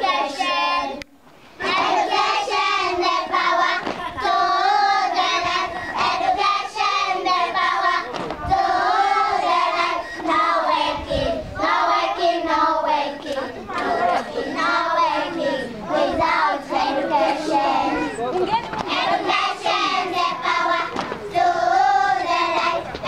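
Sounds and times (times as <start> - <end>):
girls singing together: 0.0 - 23.0.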